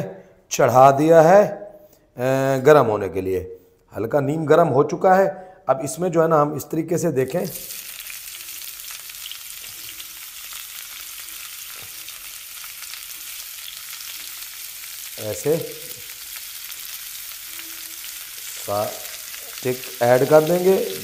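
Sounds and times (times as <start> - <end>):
chicken sizzling in pan: 7.3 - 21.0.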